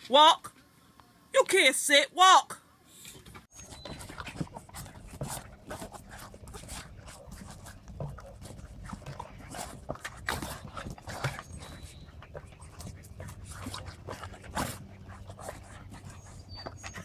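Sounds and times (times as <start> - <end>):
dogs breathing: 3.5 - 17.0
paws scuffling on dirt: 3.5 - 17.0.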